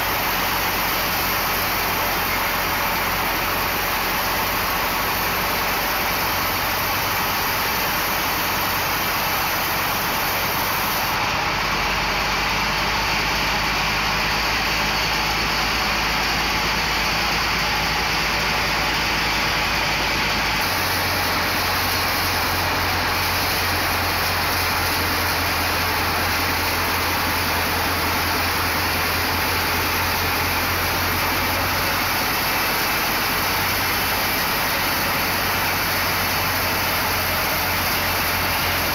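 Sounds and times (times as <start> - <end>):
band saw cutting log: 7.2 - 11.2, 20.5 - 38.9.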